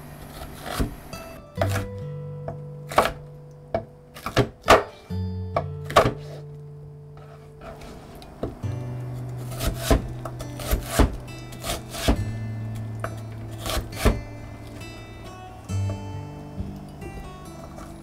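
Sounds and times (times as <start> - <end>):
knife chopping on wooden board: 0.4 - 1.0, 1.6 - 1.9, 2.9 - 3.2, 3.8 - 5.0, 5.6 - 6.4, 9.5 - 12.2, 13.6 - 14.2
background music: 0.6 - 18.0.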